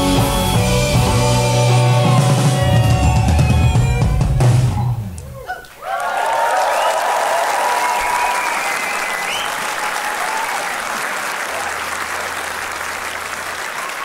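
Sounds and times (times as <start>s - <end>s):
high cheers or whistles: 5.5s - 11.8s, 13.6s - 14.0s
audience applauding: 5.5s - 14.0s.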